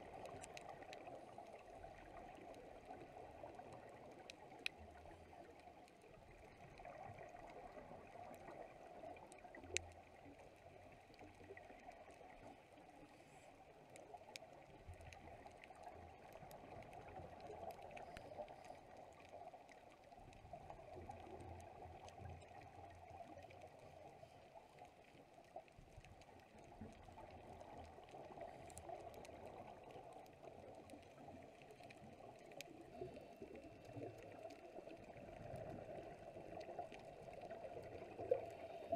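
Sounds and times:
small clicks: 0:00.2 - 0:01.7
underwater water hiss: 0:35.1 - 0:38.9.

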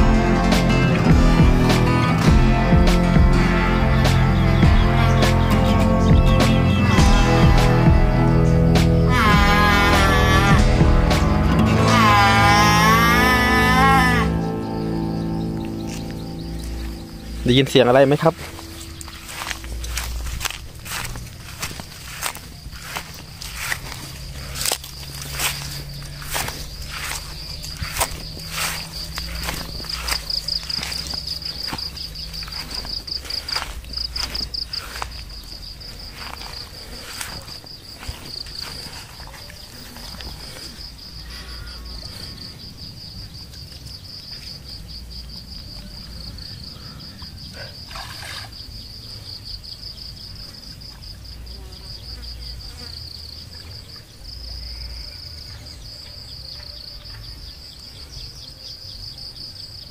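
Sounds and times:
high-pitched insect trill: 0:06.7 - 0:59.9
water splashing and sloshing: 0:18.1 - 0:40.3, 0:47.7 - 0:48.8.

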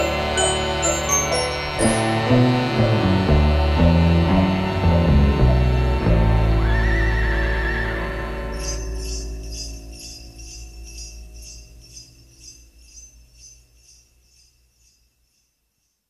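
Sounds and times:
sleigh bells shaken: 0:00.0 - 0:02.3, 0:08.5 - 0:16.0
held low note: 0:00.0 - 0:11.9.

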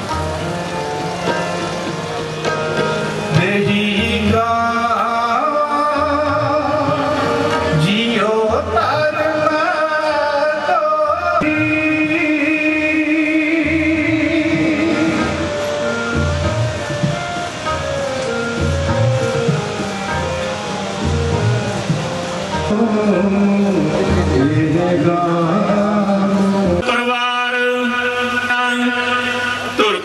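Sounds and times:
instrumental accompaniment: 0:00.0 - 0:30.0
person singing: 0:03.3 - 0:15.6, 0:22.6 - 0:30.0
low drum beat: 0:16.2 - 0:24.9.

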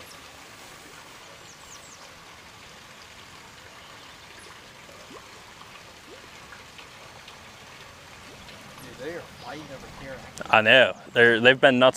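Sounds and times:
faint chirps and ticks: 0:02.9 - 0:11.0.

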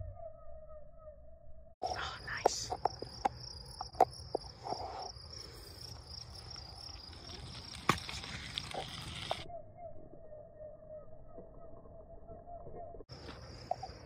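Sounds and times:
night insects chirping: 0:01.8 - 0:09.5, 0:13.1 - 0:14.0.

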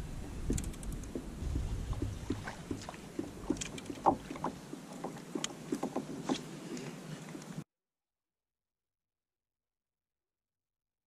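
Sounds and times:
water rumbling against hull: 0:00.0 - 0:07.6
gear clicking and knocking: 0:00.4 - 0:06.4.

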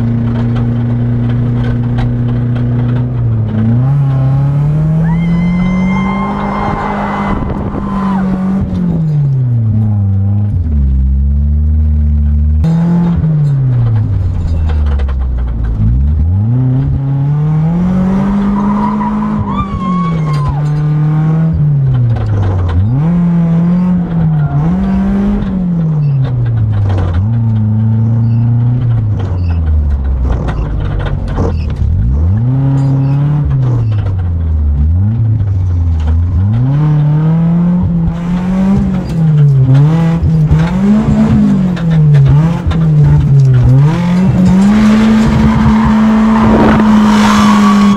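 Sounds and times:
car engine revving: 0:00.0 - 0:47.9
tyre squeal: 0:04.8 - 0:08.6, 0:18.3 - 0:21.6, 0:22.3 - 0:30.8, 0:31.4 - 0:34.1, 0:43.0 - 0:47.9.

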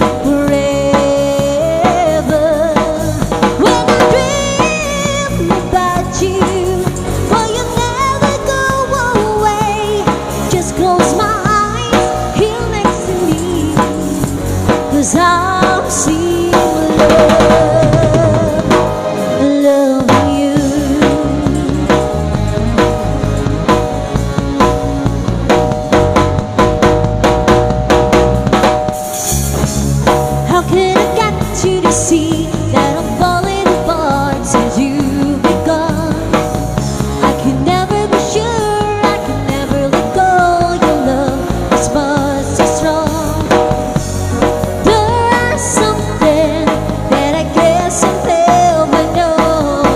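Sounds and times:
bass guitar: 0:00.0 - 0:49.9
drum kit beat: 0:00.0 - 0:49.9
wavering lead melody: 0:00.0 - 0:49.9.

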